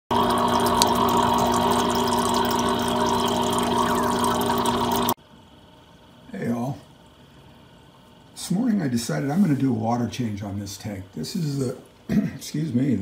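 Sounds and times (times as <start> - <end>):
water noise: 0.0 - 5.2
aquarium pump humming: 0.0 - 11.5.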